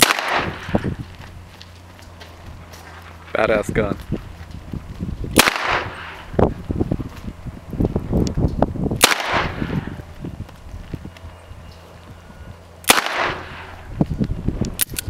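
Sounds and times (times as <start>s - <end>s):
revolver gunshots with echo: 0.0s - 0.9s, 5.3s - 6.3s, 9.0s - 10.0s, 12.8s - 13.8s.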